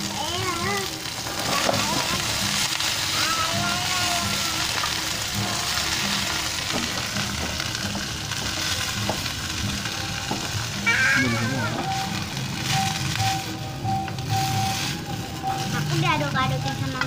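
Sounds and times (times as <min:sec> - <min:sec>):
high voice: 0:00.0 - 0:02.4, 0:03.0 - 0:04.9, 0:10.8 - 0:12.2, 0:15.6 - 0:17.0
oil sizzling in a wok: 0:00.0 - 0:17.0
wooden spatula scraping a pan: 0:11.7 - 0:17.0.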